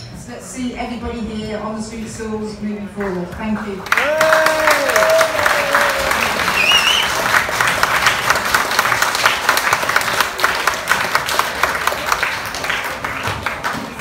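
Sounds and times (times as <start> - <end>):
audience applauding: 3.8 - 14.0
wavering whistle: 6.5 - 7.2.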